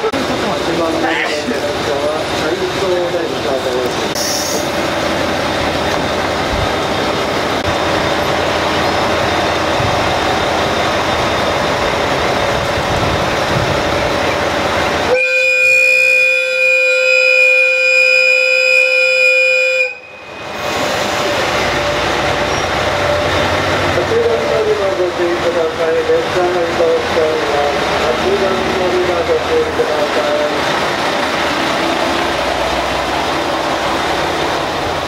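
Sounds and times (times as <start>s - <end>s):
diesel train running rumble: 0.0s - 35.0s
train horn long blast: 15.1s - 20.3s.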